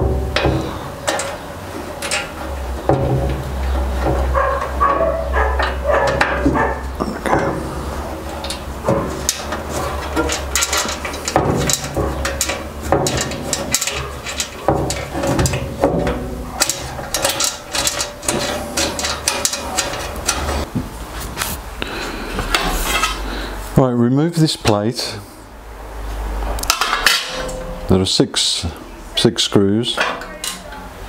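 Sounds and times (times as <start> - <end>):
metallic clicks and rattles: 0.0 - 20.7.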